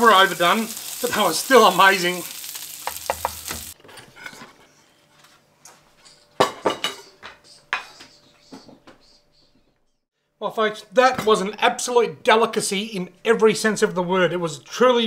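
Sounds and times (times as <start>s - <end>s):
fish sizzling in frying pan: 0.0s - 3.8s
spatula clicking on pan: 2.8s - 3.5s
cutlery and dishes clinking: 6.4s - 7.1s.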